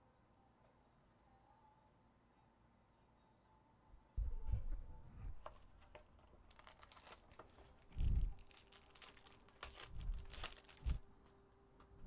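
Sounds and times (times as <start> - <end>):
foil wrapper crinkling and tearing: 6.2 - 11.1.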